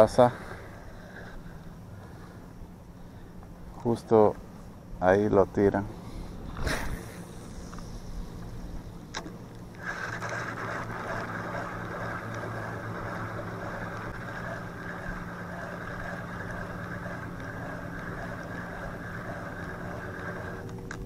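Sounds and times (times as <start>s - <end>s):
fishing reel whirring: 6.7s - 21.0s.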